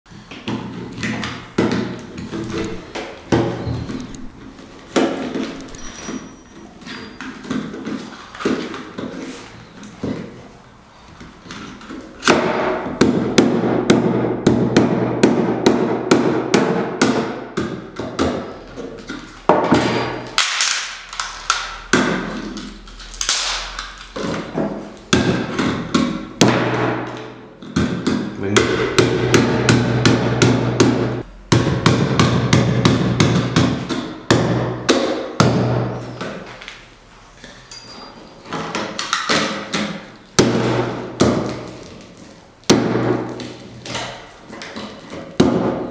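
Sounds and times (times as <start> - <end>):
plastic cracking: 20.4 - 25.0.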